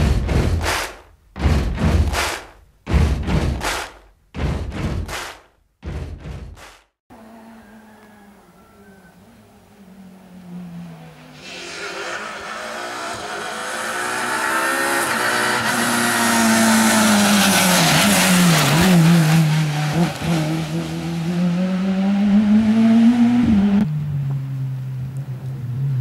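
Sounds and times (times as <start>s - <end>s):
rally car engine passing: 7.2s - 26.0s.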